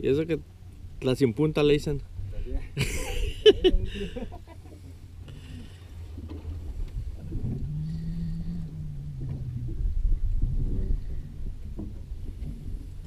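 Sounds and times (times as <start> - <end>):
boat low rumble: 0.0 - 13.0
held low tone: 6.4 - 12.8.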